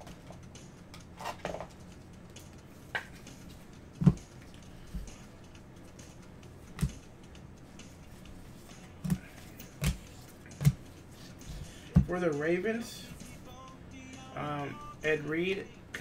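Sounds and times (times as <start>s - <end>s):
cards tapping and clicking on table: 9.8s - 10.0s.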